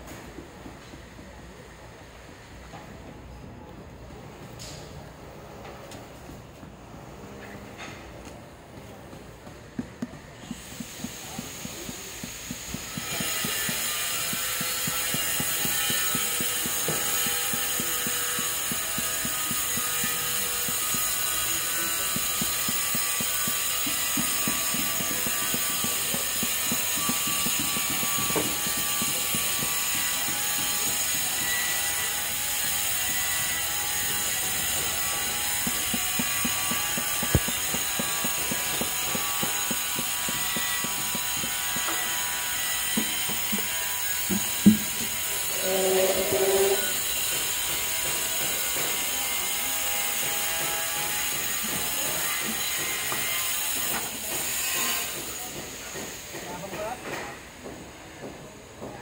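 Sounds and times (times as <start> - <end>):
hammer tapping on tile rubble: 8.7 - 45.4.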